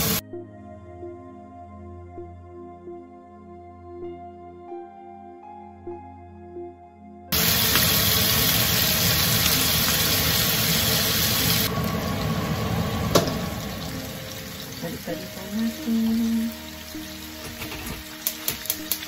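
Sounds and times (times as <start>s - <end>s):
soft background music: 0.0s - 19.0s
chicken frying in oil: 7.3s - 19.0s.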